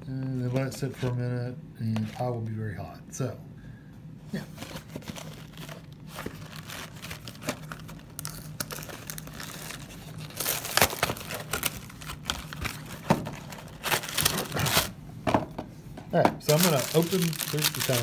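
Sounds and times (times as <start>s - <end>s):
cardboard and plastic wrap crinkling: 4.4s - 15.0s, 16.4s - 18.0s.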